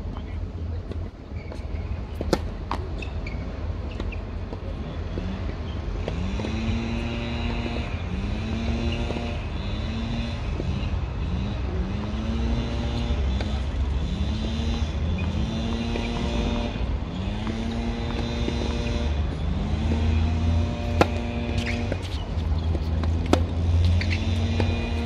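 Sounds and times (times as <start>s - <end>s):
tennis ball bouncing: 0.1s - 9.4s, 12.0s - 13.8s, 14.5s - 25.0s
tennis racket hitting ball: 2.1s - 2.8s, 17.3s - 25.0s.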